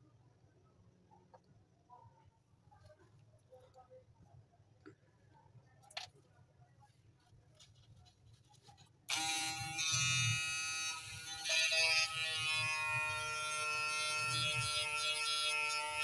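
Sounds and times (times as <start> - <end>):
small electric motor whining: 9.1 - 16.0.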